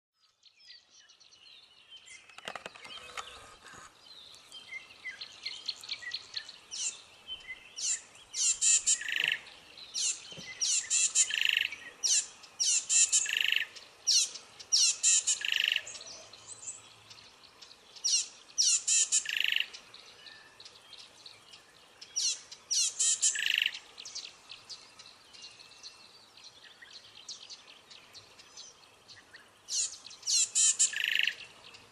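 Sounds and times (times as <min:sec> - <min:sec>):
quiet bird chirping: 0:00.2 - 0:31.9
rapid high-pitched bird chirps: 0:22.2 - 0:23.8, 0:29.7 - 0:31.4.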